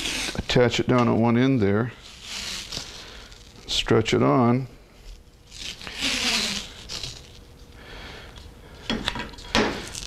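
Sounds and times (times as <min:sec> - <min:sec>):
tape peeling off roll: 0:00.0 - 0:00.5, 0:02.0 - 0:03.7, 0:05.5 - 0:07.4
tape tearing with crackles: 0:00.0 - 0:00.6, 0:02.0 - 0:03.7, 0:05.4 - 0:07.4, 0:09.8 - 0:10.0.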